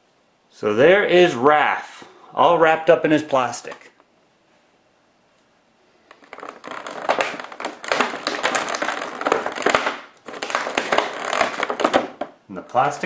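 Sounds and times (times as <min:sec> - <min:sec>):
plastic packaging crinkling: 0:06.0 - 0:13.0.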